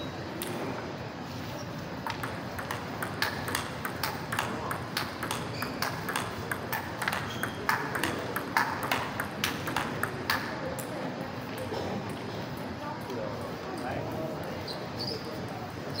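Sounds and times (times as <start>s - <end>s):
table tennis balls clicking: 2.0s - 12.2s.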